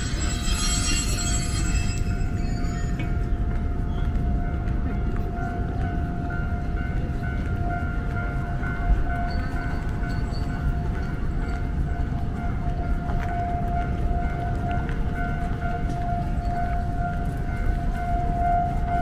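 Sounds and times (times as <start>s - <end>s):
high machine whine: 0.0s - 3.4s.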